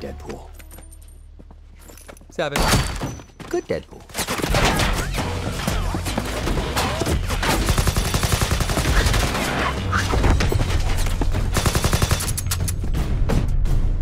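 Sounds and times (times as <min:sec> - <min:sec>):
automatic gunfire: 0:07.5 - 0:09.3, 0:11.6 - 0:12.5.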